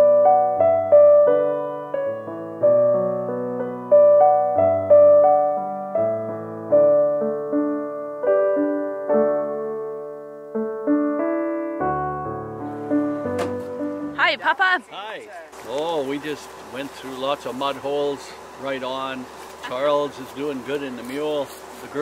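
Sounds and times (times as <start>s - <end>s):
slow piano melody: 0.0s - 14.7s.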